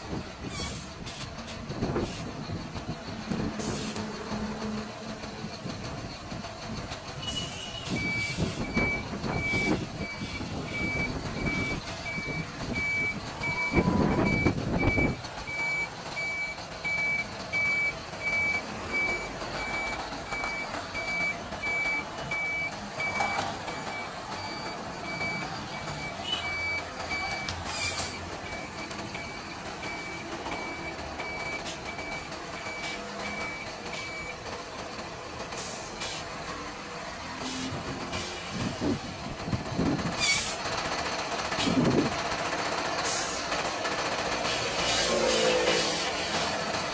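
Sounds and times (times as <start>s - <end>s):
diesel engine running: 0.0s - 46.9s
truck reverse alarm beeps: 7.1s - 34.5s.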